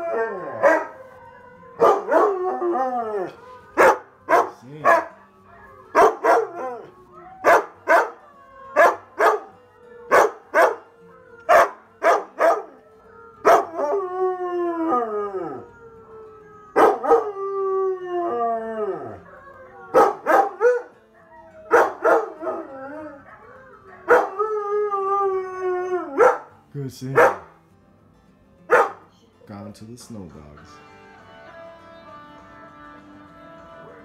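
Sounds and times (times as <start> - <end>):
dogs barking: 0.0 - 1.0, 1.7 - 12.8, 13.4 - 14.0, 16.7 - 17.4, 19.1 - 24.4, 26.0 - 27.6, 28.7 - 29.1
dog howling: 0.0 - 26.5
dogs howling on tv: 0.0 - 27.6, 28.6 - 29.2.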